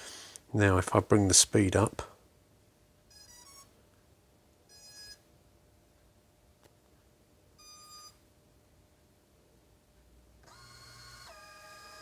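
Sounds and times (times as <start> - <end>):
short electronic motor tones: 3.1 - 3.7, 10.4 - 12.0.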